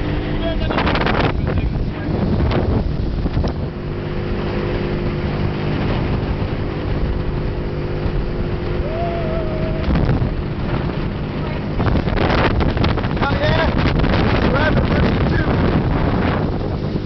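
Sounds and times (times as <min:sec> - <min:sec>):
outboard motor drone: 0:00.0 - 0:17.0
wind buffeting microphone: 0:00.0 - 0:17.0.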